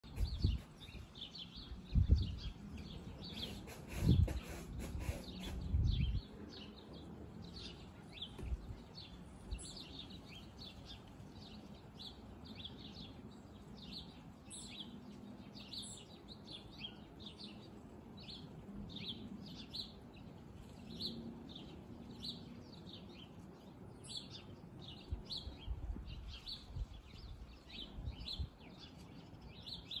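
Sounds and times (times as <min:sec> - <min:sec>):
wind buffeting microphone: 0:00.0 - 0:06.7, 0:08.1 - 0:09.8, 0:24.9 - 0:28.7
small birds chirping: 0:00.0 - 0:30.0.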